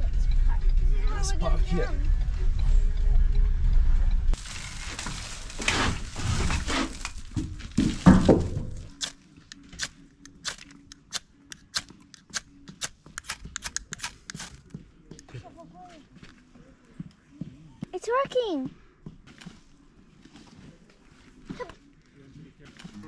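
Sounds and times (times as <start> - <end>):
rustling: 4.4 - 9.2
striker scraping ferro rod: 10.4 - 14.7.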